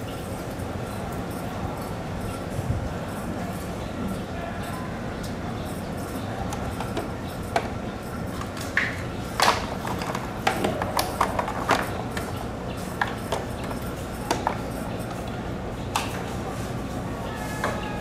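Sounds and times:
hard objects clicking and knocking: 6.5 - 15.3.

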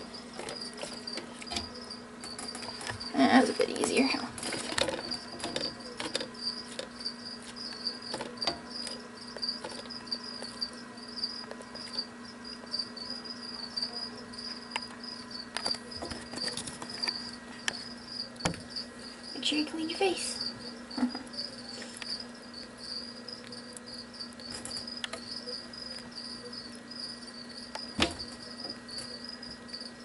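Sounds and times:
crickets chirping: 0.0 - 30.0.

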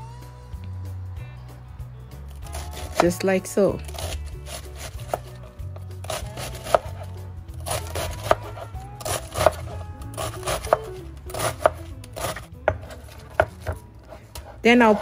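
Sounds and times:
background music: 0.0 - 15.0
knife slicing cabbage: 2.3 - 3.2, 3.8 - 15.0
knife tapping cutting board: 12.6 - 13.8.

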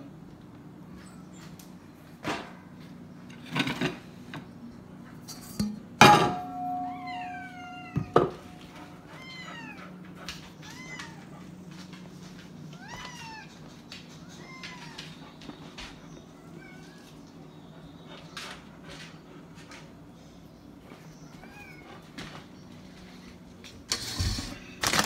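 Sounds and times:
cat meowing: 6.7 - 8.3, 9.1 - 9.9, 10.6 - 11.3, 12.8 - 13.7, 14.3 - 15.2.

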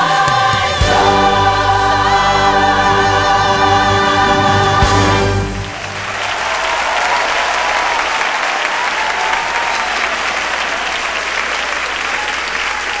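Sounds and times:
audience applauding: 2.7 - 13.0.

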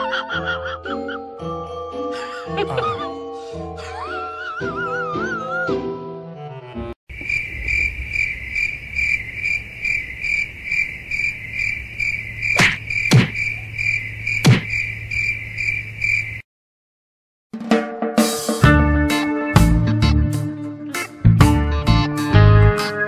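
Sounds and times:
cricket chirping: 7.1 - 16.4.

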